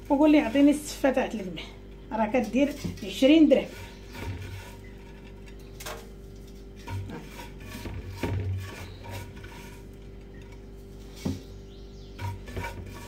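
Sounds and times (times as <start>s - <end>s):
faint steady hum: 0.0s - 13.0s
hands rubbing grains in bowl: 6.8s - 10.0s.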